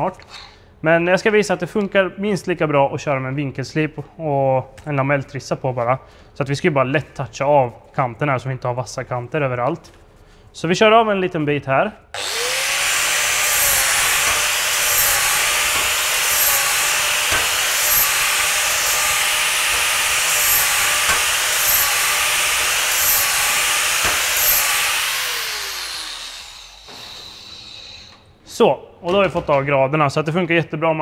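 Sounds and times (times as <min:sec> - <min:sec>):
grinder winding down whine: 0:12.2 - 0:28.2
angle grinder grinding metal: 0:12.2 - 0:28.3.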